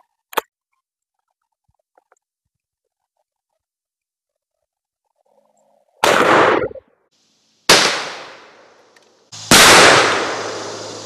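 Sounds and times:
shotgun blasts: 0:06.0 - 0:06.8, 0:07.7 - 0:08.6, 0:09.5 - 0:10.8.

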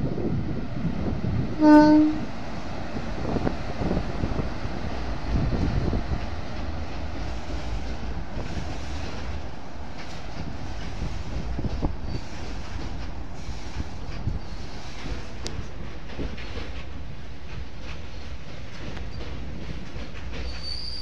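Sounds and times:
train wheels rumbling on rails: 0:00.0 - 0:21.0
clicks over rail joints: 0:12.6 - 0:20.9.

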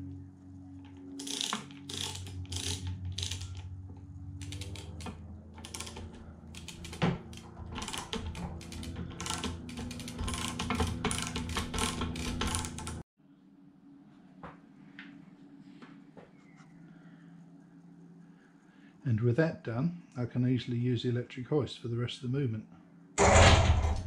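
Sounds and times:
steady low hum: 0:00.0 - 0:24.0
chain hoist ratchet clicking: 0:00.9 - 0:13.0.

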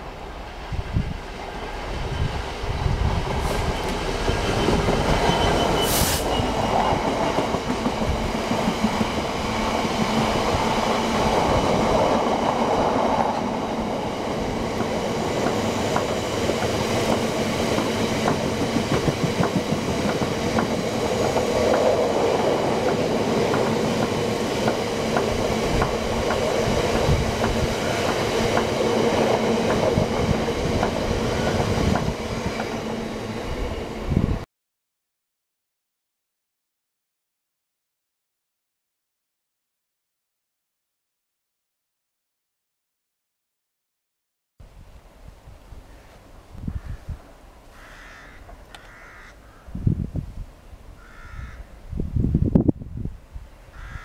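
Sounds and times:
diesel locomotive passing: 0:00.0 - 0:34.4
train wagons rumbling: 0:00.3 - 0:34.4
short hiss: 0:05.9 - 0:06.3
wheels clicking over rail joints: 0:14.7 - 0:32.8.

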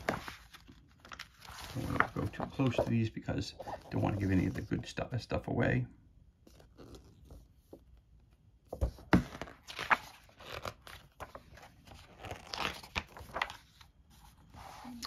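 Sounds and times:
paper pages rustling: 0:00.0 - 0:04.8, 0:08.7 - 0:15.0.

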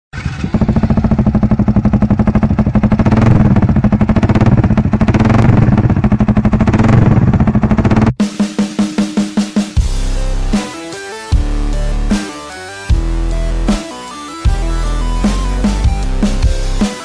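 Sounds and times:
motorcycle exhaust popping: 0:00.2 - 0:08.2.

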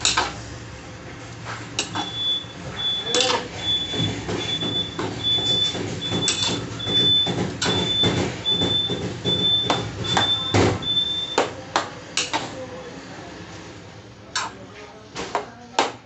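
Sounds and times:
high-pitched beeps: 0:01.9 - 0:11.5.

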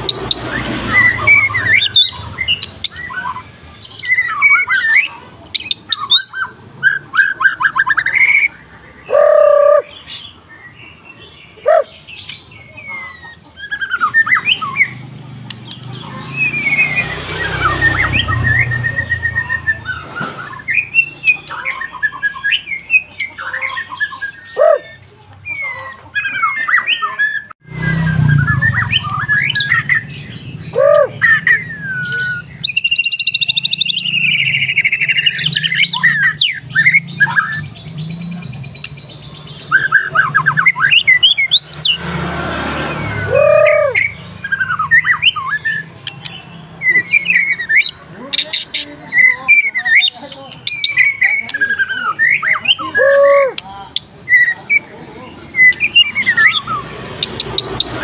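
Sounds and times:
bird singing whistles: 0:16.4 - 0:23.0, 0:24.1 - 0:39.0, 0:42.9 - 0:48.0.

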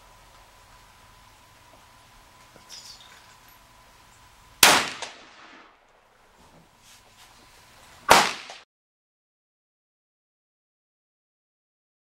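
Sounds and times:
rifle shots: 0:04.6 - 0:05.8, 0:08.1 - 0:08.6.

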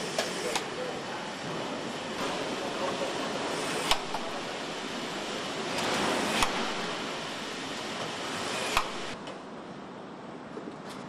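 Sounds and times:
machinery and air hiss: 0:00.0 - 0:09.2
sharp tool clicks: 0:03.8 - 0:04.3, 0:05.8 - 0:06.9, 0:08.6 - 0:09.2.

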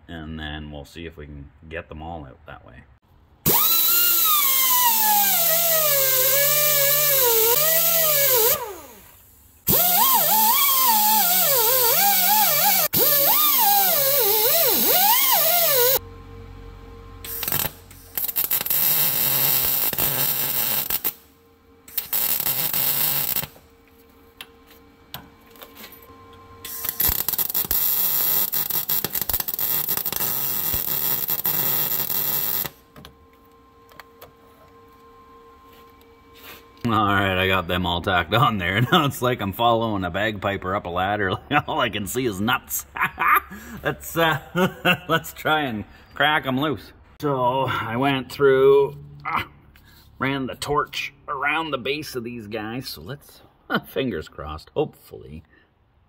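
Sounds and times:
hand grinder grinding metal: 0:03.5 - 0:09.0, 0:09.7 - 0:16.0
welder crackling: 0:03.5 - 0:16.0, 0:17.2 - 0:21.2, 0:21.9 - 0:23.6, 0:26.7 - 0:32.8.

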